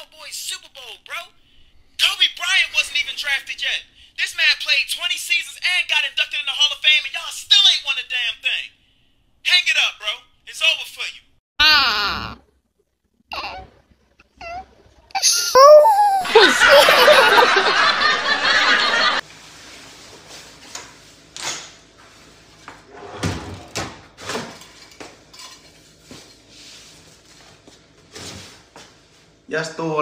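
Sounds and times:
small child crying: 15.2 - 17.4
loud laughter: 15.3 - 19.2.

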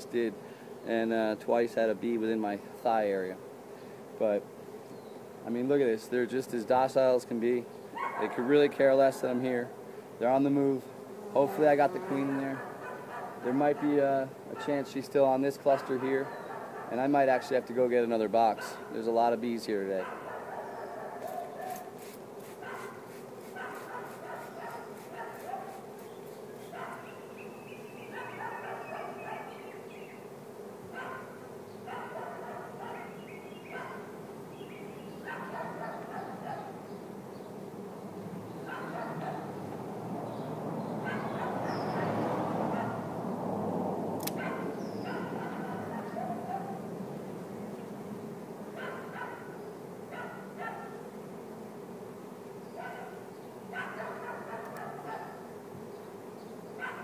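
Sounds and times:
bee swarm humming: 0.0 - 57.0
dog barking: 8.0 - 8.7, 12.0 - 14.0, 15.8 - 17.0, 20.0 - 21.9, 22.6 - 23.0, 23.6 - 25.8, 26.7 - 27.1, 28.1 - 29.6, 31.0 - 34.1, 35.2 - 36.8, 38.7 - 39.5, 41.0 - 43.1, 44.4 - 46.8, 48.8 - 51.0, 52.8 - 55.5, 56.8 - 57.0.

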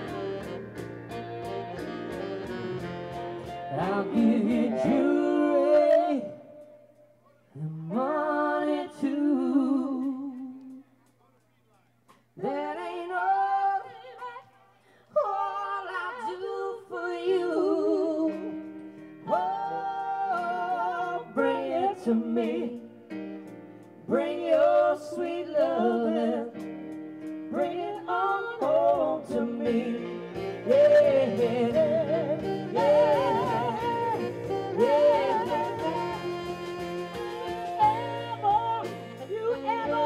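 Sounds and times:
live band music: 0.0 - 6.8, 17.6 - 40.0
woman singing with vibrato: 3.7 - 6.9, 12.4 - 18.6, 19.2 - 22.9, 27.5 - 40.0
steady drum beat: 29.8 - 39.9.

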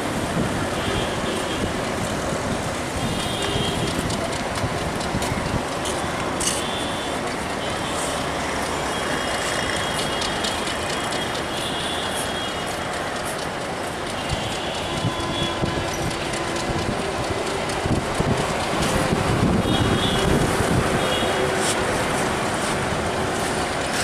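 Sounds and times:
diesel locomotives running: 0.0 - 24.0
train wheels knocking over rail joints: 8.2 - 24.0.

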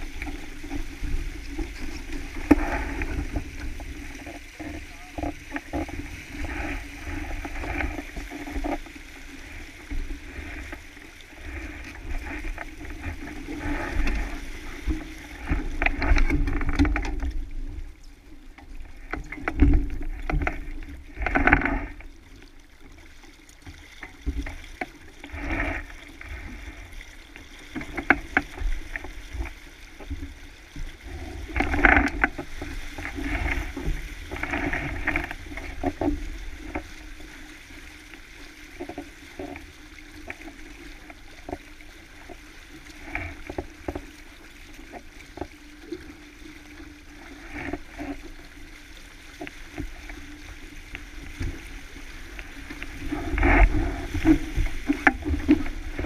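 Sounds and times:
splashes and knocks: 0.0 - 17.9, 18.6 - 22.2, 23.6 - 46.2, 49.4 - 56.0
water rushing along hull: 0.0 - 56.0.

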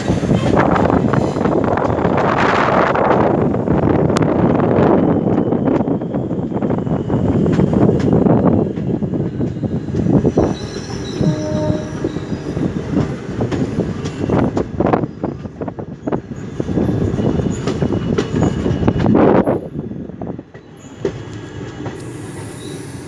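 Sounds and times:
train wheels rumbling and clattering: 0.0 - 23.0
thin wheel squeals: 10.3 - 12.7, 22.0 - 23.0.

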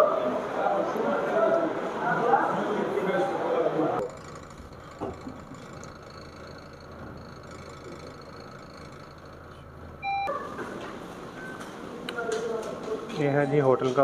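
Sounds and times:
lift humming: 4.0 - 12.0.

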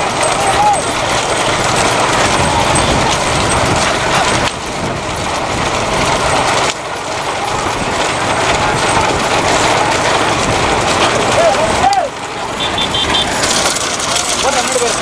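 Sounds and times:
road and wind noise: 0.0 - 15.0
vehicle running at speed: 0.0 - 15.0.

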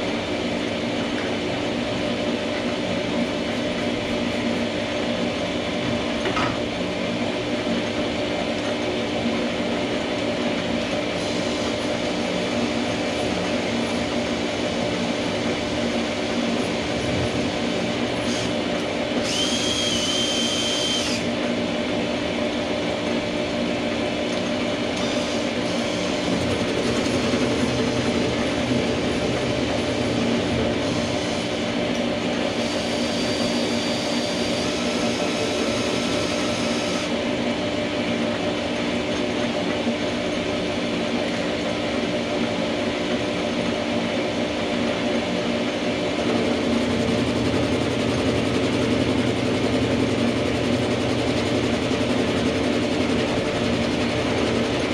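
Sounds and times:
metal lathe humming: 0.0 - 54.9
cordless drill turning handwheel: 19.2 - 21.3.

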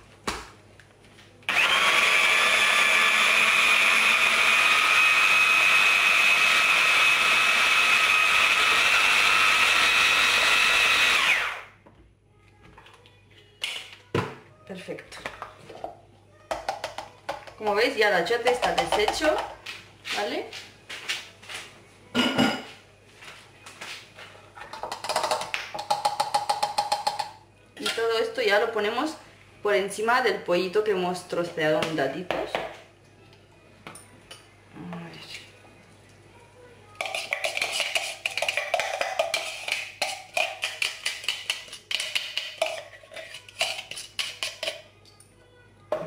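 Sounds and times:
hollow knocking on plastic bowl: 16.5 - 17.6, 18.5 - 19.6, 24.7 - 27.4.

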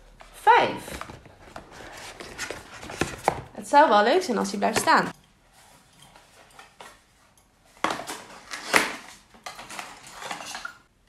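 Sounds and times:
cardboard box being opened: 1.1 - 3.5.

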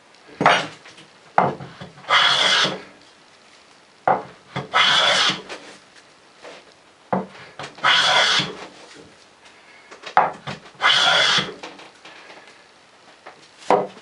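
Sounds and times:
hand plane shaving rasp: 2.1 - 2.8, 4.6 - 5.6, 7.8 - 8.7, 10.8 - 11.6.

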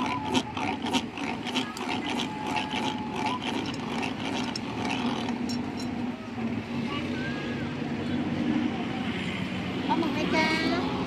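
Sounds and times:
hand-cranked press rollers clacking: 0.0 - 6.0
street traffic hum: 0.0 - 11.0.

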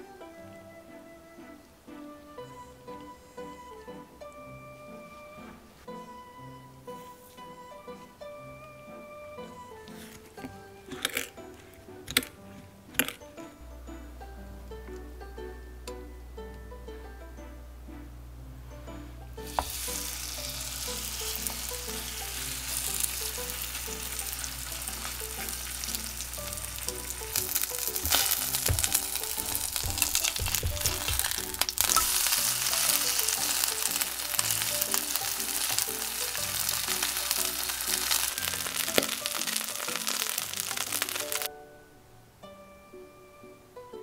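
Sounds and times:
pancake sizzling in hot oil: 19.4 - 41.5.

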